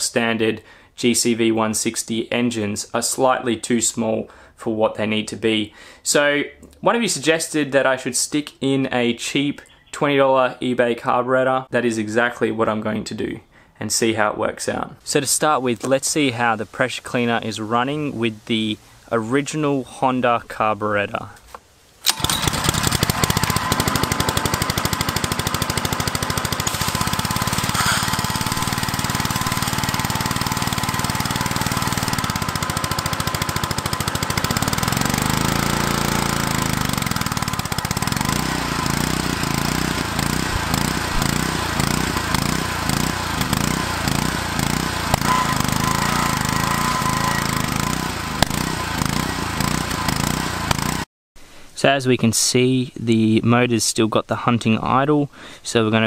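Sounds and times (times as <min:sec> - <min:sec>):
small engine hunting idle: 0:22.1 - 0:51.1.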